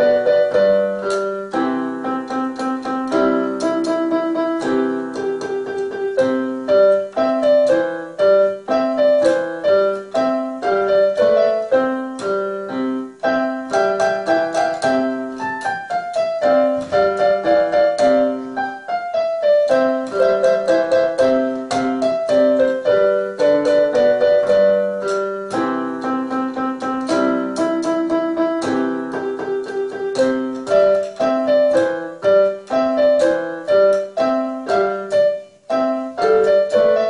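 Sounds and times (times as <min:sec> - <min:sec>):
electronic keyboard melody: 0:00.0 - 0:37.0.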